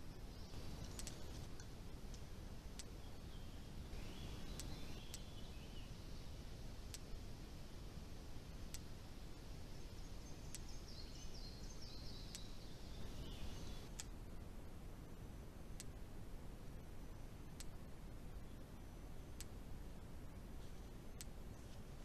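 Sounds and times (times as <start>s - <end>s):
faint birds chirping: 0.0s - 22.0s
low background rumble: 0.0s - 22.0s
sharp clicks: 0.5s - 3.0s, 4.5s - 5.3s, 15.8s - 16.0s, 17.6s - 17.8s, 21.2s - 21.4s.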